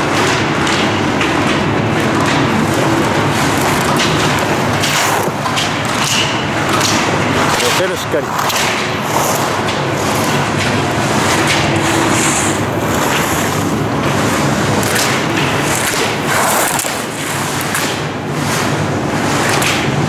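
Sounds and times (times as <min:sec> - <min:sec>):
skis scraping on hard snow: 0:02.6 - 0:05.4, 0:07.4 - 0:17.8.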